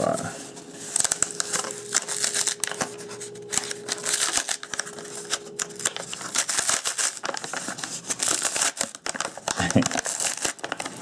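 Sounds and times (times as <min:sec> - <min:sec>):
cardboard crackling and rustling: 0:00.0 - 0:11.0.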